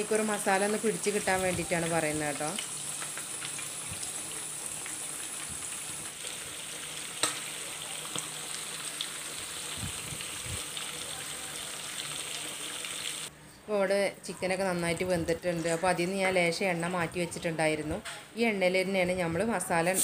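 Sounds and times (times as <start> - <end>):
chicken frying in hot oil: 0.0 - 13.3
sharp oil pop: 7.2 - 7.4.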